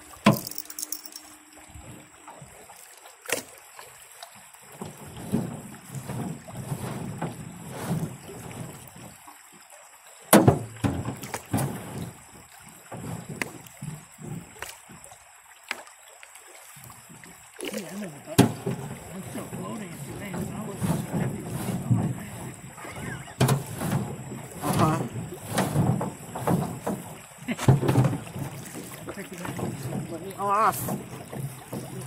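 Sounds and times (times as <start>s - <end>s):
water splashing and sloshing: 0.0s - 32.0s
sharp knocks: 10.3s - 12.0s.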